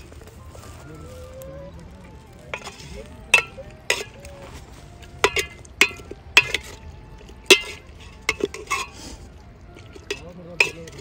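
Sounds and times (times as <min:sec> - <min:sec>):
metal spoon clinking in pot: 0:02.5 - 0:04.5, 0:05.2 - 0:09.0, 0:09.8 - 0:11.0.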